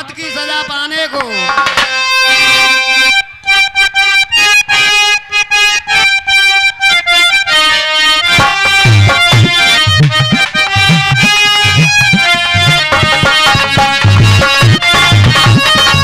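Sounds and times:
harmonium melody: 0.0s - 16.0s
hand drum beat: 8.4s - 16.0s.

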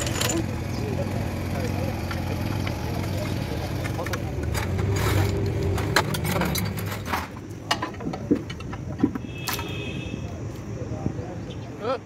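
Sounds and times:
metal tools clinking on engine: 0.0s - 0.9s, 2.0s - 9.8s.

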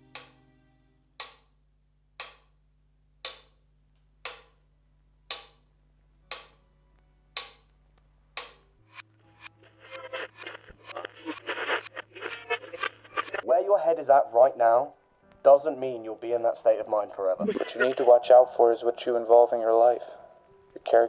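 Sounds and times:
metronome ticking: 0.1s - 0.4s, 1.2s - 1.5s, 2.2s - 2.5s, 3.2s - 3.6s, 4.2s - 4.6s, 5.3s - 5.7s, 6.3s - 6.6s, 7.4s - 7.7s.

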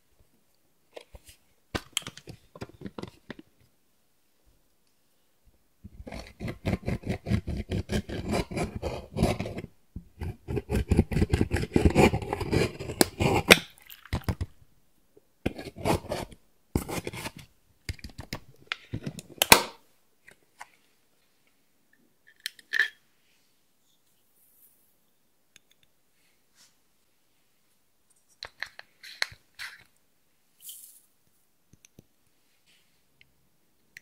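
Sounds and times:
tool scraping eyeshadow: 6.0s - 13.6s, 15.5s - 17.4s.

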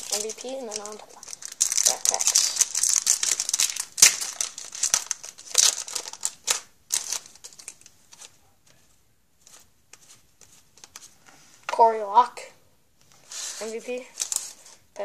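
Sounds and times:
foil wrapper crinkling and tearing: 0.0s - 8.3s, 13.6s - 14.8s.

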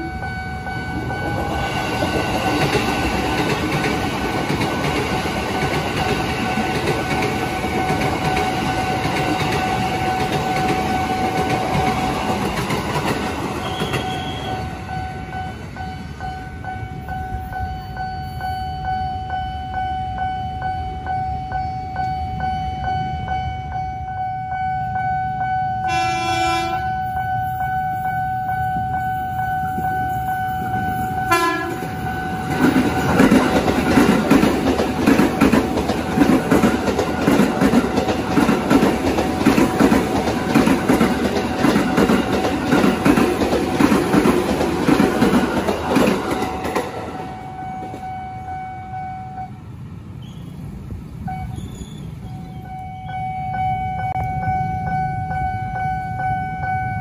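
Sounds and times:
level-crossing warning tone: 0.0s - 49.9s, 51.1s - 57.0s
train wheels clattering on rails: 0.6s - 17.7s, 29.7s - 48.2s
train horn blasts: 13.6s - 14.8s, 25.8s - 27.5s, 31.1s - 32.0s.

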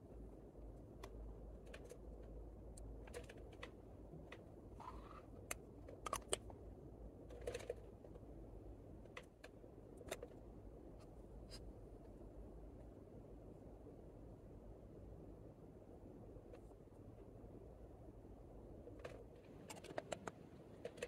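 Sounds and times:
plastic lipstick case clicking: 6.0s - 6.5s.

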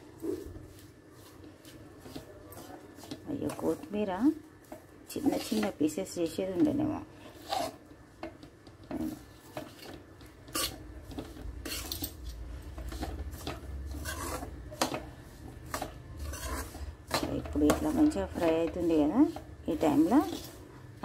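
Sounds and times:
metal spatula scraping pan: 5.1s - 6.0s, 6.7s - 7.9s, 8.8s - 21.0s.

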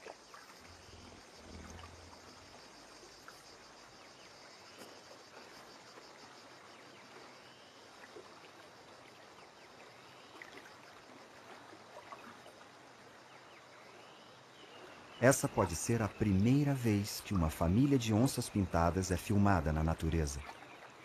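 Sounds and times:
faint chirps: 0.0s - 8.2s
background hiss: 0.0s - 20.5s.

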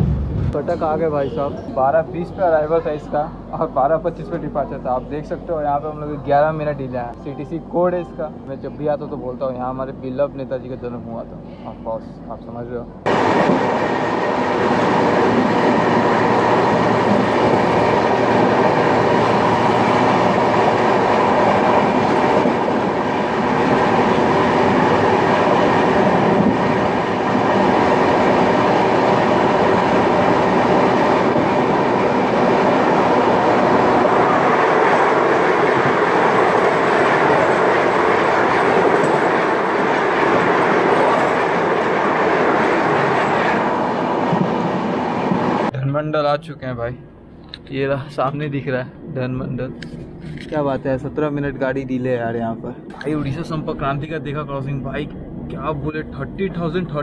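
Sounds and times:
train wheels rushing on rails: 13.1s - 45.7s.

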